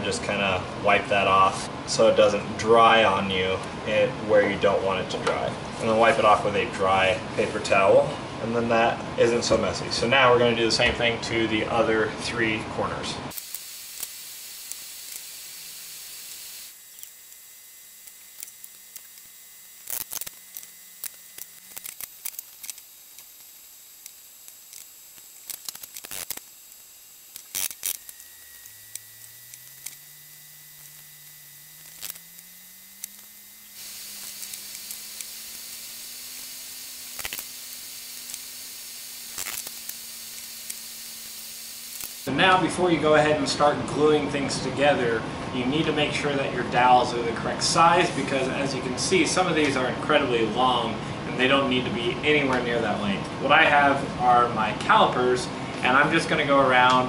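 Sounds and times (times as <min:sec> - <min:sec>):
room tone hiss: 0:11.3 - 0:57.0
faint low hum rising in pitch: 0:13.6 - 0:42.4.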